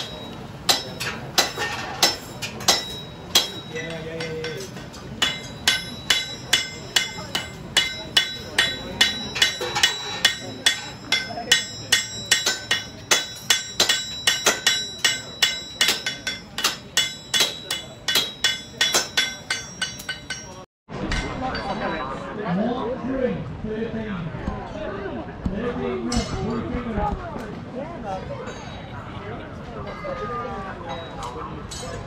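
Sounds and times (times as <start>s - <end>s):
hammer ringing on horseshoe: 0.0s - 21.3s.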